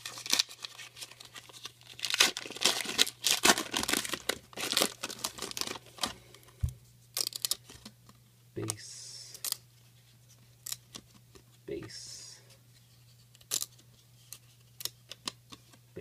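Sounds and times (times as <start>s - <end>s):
foil wrapper crinkling and tearing: 0.0s - 6.2s.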